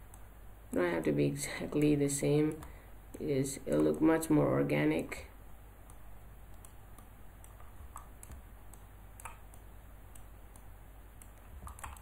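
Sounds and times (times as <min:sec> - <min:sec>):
low steady hum: 0:00.0 - 0:12.0
mouse and keyboard clicks: 0:01.7 - 0:04.3, 0:05.8 - 0:12.0.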